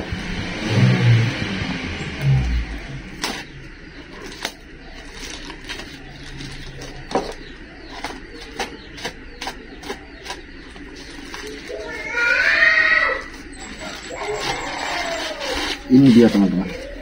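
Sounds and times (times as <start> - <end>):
paper and tape wrapping crinkling: 4.1 - 17.0.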